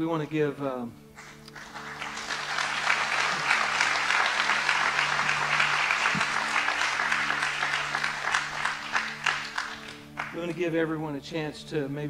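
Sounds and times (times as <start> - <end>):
congregation applauding: 1.2 - 10.6.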